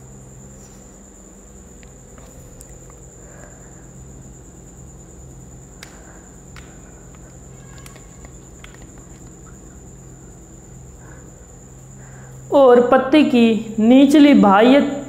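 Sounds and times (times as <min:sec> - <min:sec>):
faint clicks and taps: 0:05.8 - 0:09.6.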